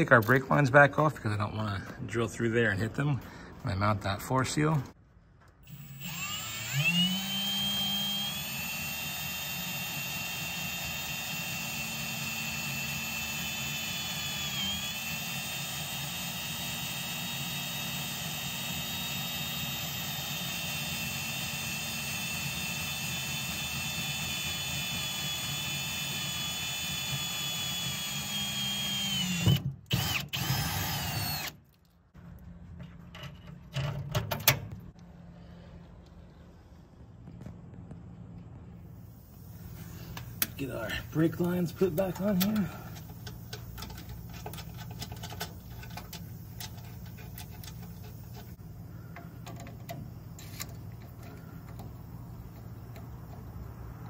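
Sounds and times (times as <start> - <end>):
cordless drill drilling: 5.6 - 31.6.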